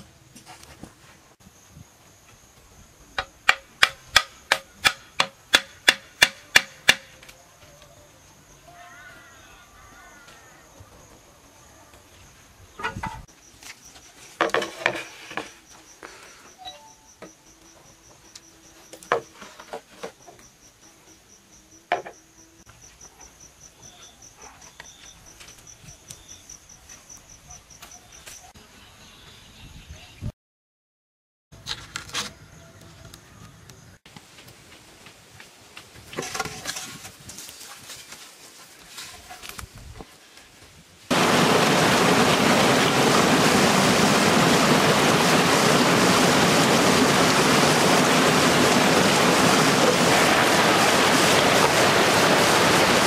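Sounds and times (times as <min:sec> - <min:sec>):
high insect buzz: 0:15.0 - 0:19.5, 0:20.4 - 0:24.2.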